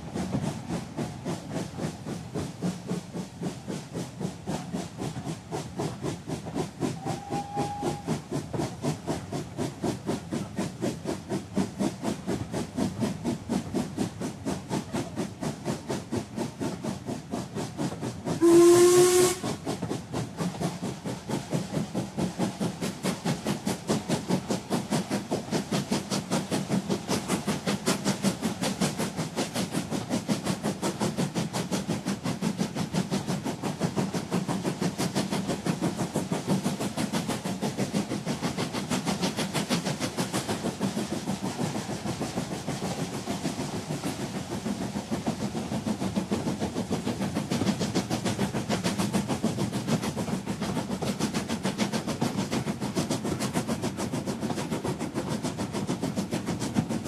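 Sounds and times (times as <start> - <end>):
steam locomotive exhaust chuffs: 0.0 - 57.0
steam whistle blast: 7.0 - 8.2, 18.4 - 19.5.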